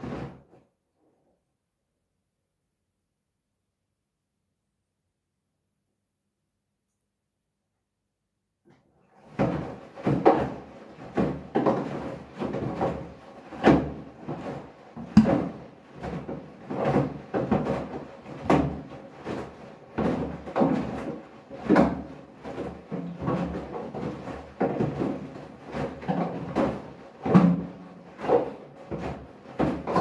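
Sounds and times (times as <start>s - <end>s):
washing machine thuds and sloshes: 9.1s - 30.0s.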